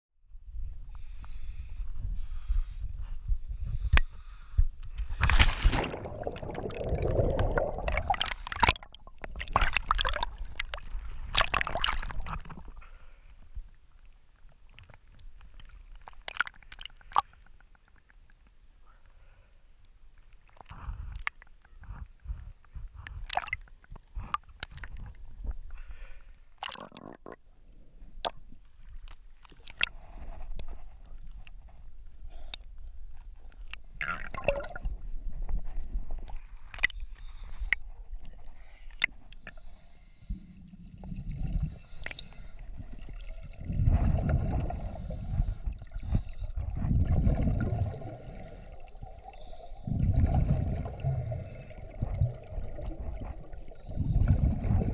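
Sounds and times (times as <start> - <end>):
water sloshing and gurgling: 2.8 - 18.6, 20.2 - 54.9
scuba exhaust bubbles: 5.8 - 12.7, 34.0 - 35.0, 39.3 - 54.9.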